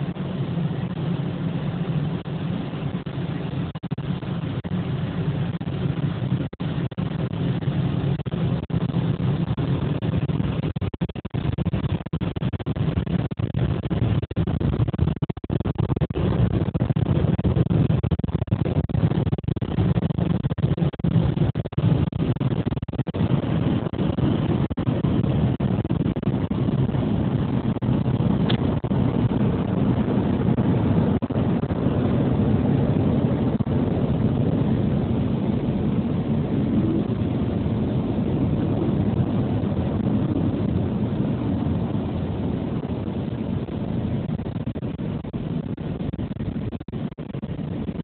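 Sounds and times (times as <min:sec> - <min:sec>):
car wash water spray and machinery: 0:00.0 - 0:14.6, 0:21.8 - 0:48.0.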